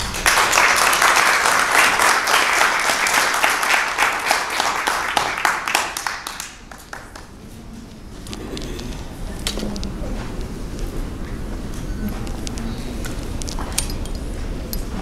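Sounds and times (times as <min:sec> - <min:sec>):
small group applauding: 0:00.0 - 0:07.4.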